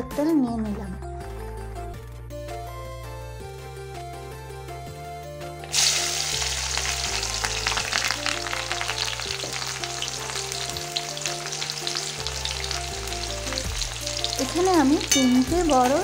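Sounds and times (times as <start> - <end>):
oil crackling and spitting: 5.6 - 15.1
onions sizzling in hot oil: 5.6 - 16.0.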